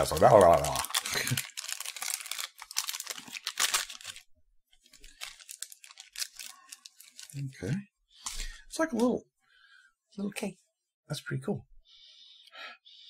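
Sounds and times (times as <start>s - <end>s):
plastic wrapper tearing and crinkling: 0.0s - 7.5s.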